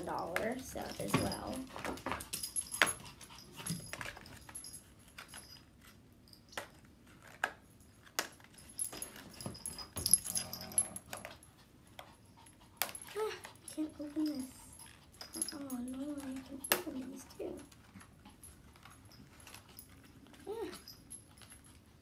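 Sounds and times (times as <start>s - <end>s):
small dog whimpering: 13.0s - 14.7s, 20.4s - 20.9s.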